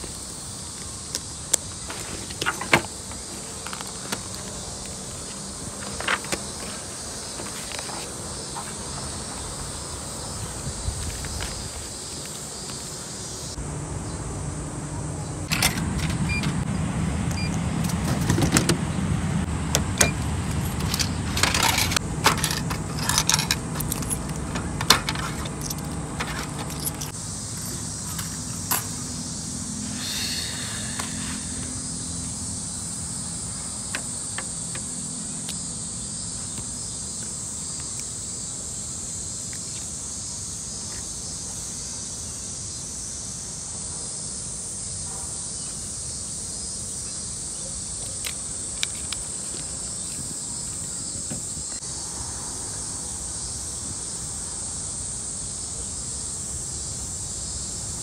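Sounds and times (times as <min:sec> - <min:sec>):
cicadas droning: 0:00.0 - 0:58.0
coins clinking into vending machine: 0:20.7 - 0:27.1.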